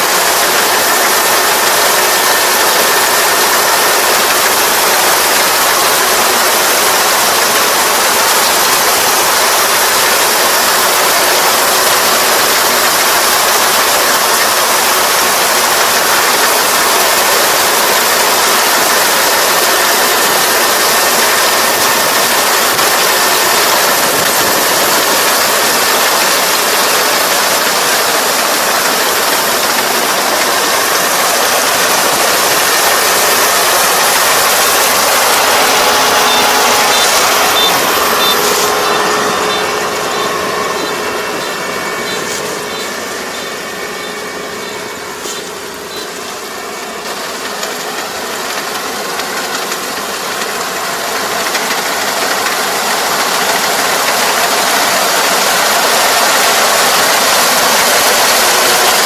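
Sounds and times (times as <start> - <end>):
combine harvester running: 0.0 - 59.0.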